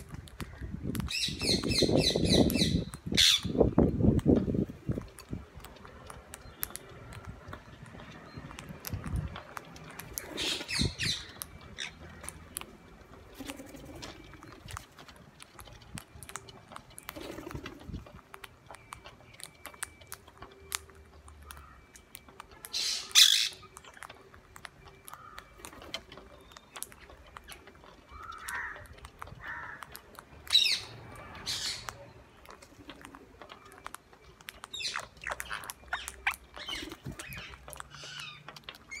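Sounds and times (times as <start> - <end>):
parakeets squawking: 0.1 - 3.7, 5.7 - 15.7, 22.6 - 25.6, 26.4 - 39.0
beaks clicking cracking seeds: 4.1 - 39.0.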